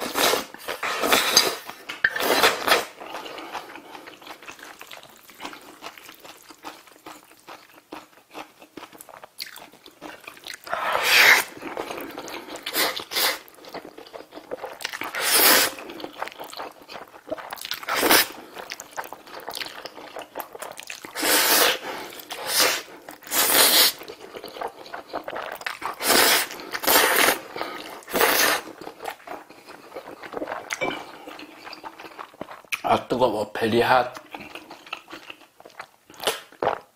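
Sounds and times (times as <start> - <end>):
person slurping noodles: 0.0 - 4.2, 10.6 - 13.5, 14.6 - 16.3, 17.8 - 18.6, 21.1 - 24.4, 25.0 - 28.8
wet chewing: 0.0 - 32.9, 34.2 - 36.9.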